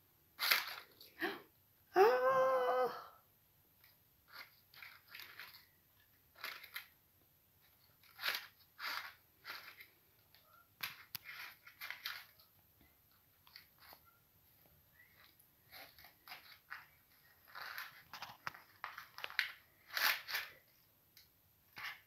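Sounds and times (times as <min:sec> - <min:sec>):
cellophane toy rustling and crackling: 0:00.4 - 0:01.0, 0:04.2 - 0:07.0, 0:07.6 - 0:12.6, 0:15.1 - 0:20.9.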